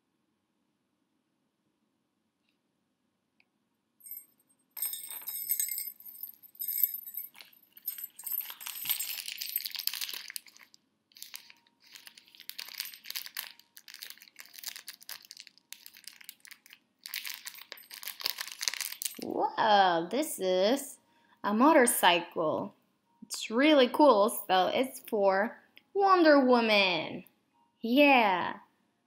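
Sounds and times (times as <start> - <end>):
bright clinking: 4.0 - 10.6
wrapping paper crinkling: 7.3 - 19.3.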